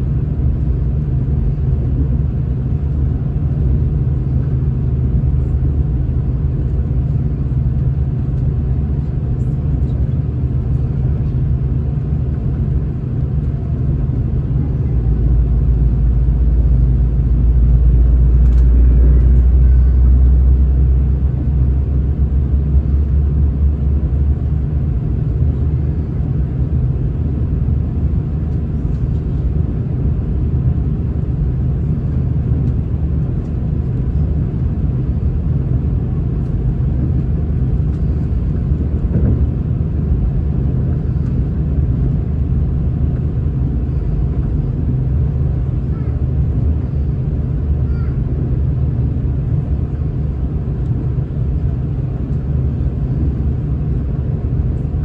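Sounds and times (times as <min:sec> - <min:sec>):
deep hum: 0:10.7 - 0:46.0
train wheels rumbling on track: 0:38.1 - 0:39.6.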